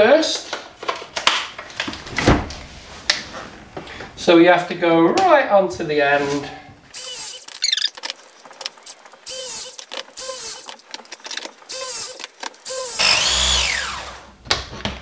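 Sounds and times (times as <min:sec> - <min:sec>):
press tool motor whirring: 0:07.0 - 0:08.0, 0:08.9 - 0:14.3.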